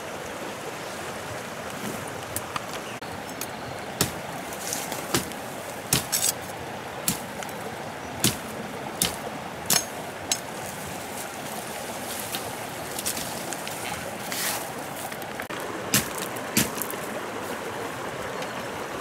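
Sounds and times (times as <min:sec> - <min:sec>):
machete chopping dry stems: 0:04.0 - 0:06.4, 0:07.0 - 0:07.6, 0:08.2 - 0:10.5, 0:15.9 - 0:17.0.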